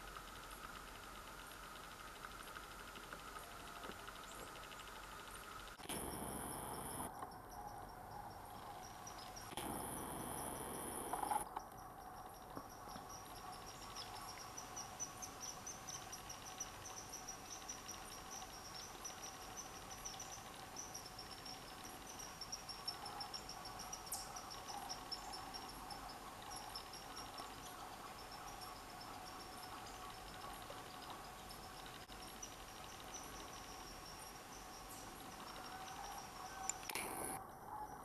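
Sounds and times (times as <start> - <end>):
crickets chirping: 0.0 - 38.0.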